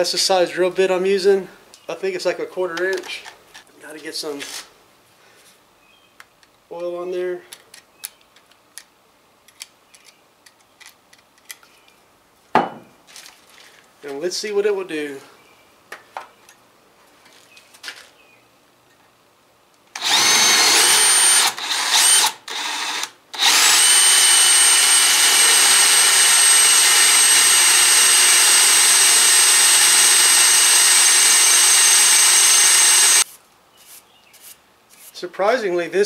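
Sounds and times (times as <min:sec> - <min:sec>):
cordless drill boring into steel: 0:20.0 - 0:33.2.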